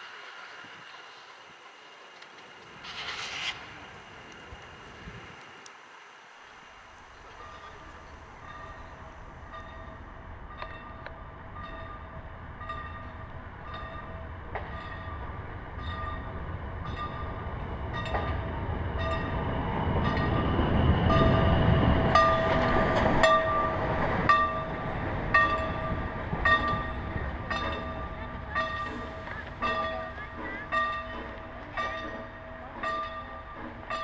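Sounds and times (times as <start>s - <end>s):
steam locomotive exhaust beats: 0.0s - 5.7s, 6.3s - 34.0s
train wheels rumbling on rails: 0.0s - 5.7s, 6.4s - 34.0s.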